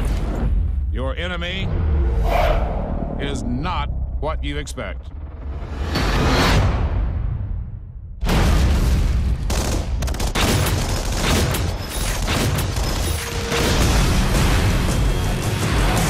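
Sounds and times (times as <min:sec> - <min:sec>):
low rumble: 0:00.0 - 0:08.4
rapid gunfire: 0:09.3 - 0:16.0.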